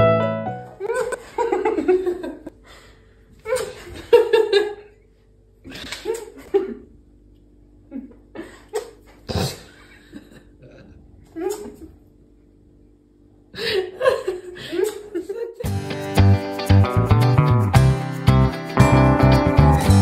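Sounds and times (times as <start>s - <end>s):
woman laughing: 0.8s - 2.5s, 3.4s - 4.9s, 10.0s - 12.0s, 13.6s - 15.7s.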